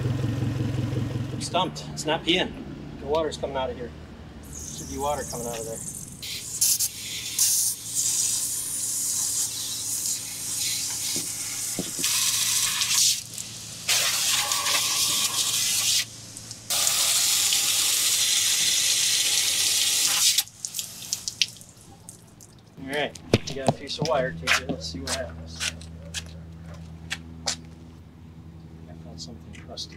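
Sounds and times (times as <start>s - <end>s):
hose nozzle spray hissing: 4.5s - 16.1s.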